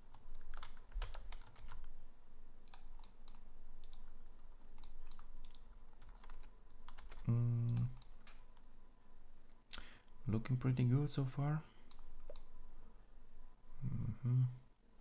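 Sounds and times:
keyboard keys clicking: 0.1s - 2.0s, 2.6s - 4.1s, 4.7s - 8.4s.

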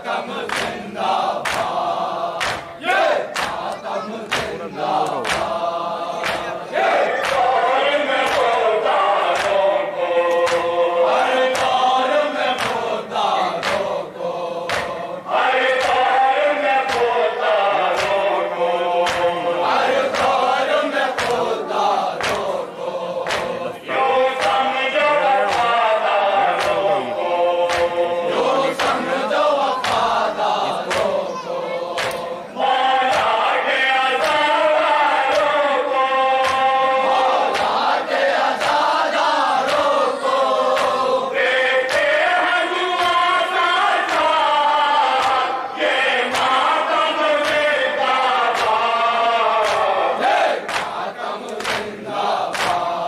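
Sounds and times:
men chanting together: 0.0s - 53.0s
hands slapping on chests: 0.4s - 8.7s, 9.3s - 15.1s, 15.7s - 16.1s, 16.8s - 17.2s, 17.8s - 18.3s, 19.0s - 23.8s, 24.4s - 24.7s, 25.4s - 25.8s, 26.5s - 27.0s, 27.6s - 31.3s, 31.9s - 32.4s, 33.0s - 33.5s, 34.2s - 34.5s, 35.2s - 35.6s, 36.4s - 36.8s, 37.4s - 41.2s, 41.8s - 43.3s, 44.0s - 44.4s, 45.1s - 45.6s, 46.2s - 46.8s, 47.4s - 47.8s, 48.4s - 48.8s, 49.6s - 53.0s.

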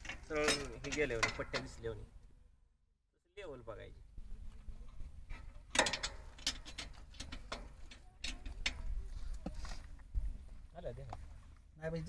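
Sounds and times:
metallic clicks and clinks: 5.7s - 8.9s.

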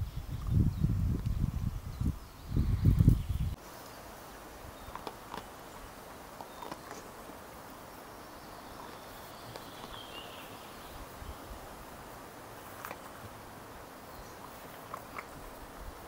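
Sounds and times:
faint steady hiss: 0.0s - 16.0s
soft clicks and rustles: 4.8s - 5.5s, 12.6s - 13.4s, 14.4s - 15.7s.

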